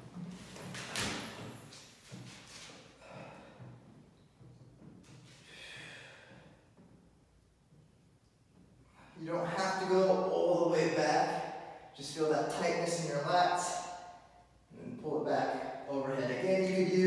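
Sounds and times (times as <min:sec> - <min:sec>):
man breathing: 0:03.0 - 0:03.8, 0:05.3 - 0:06.7.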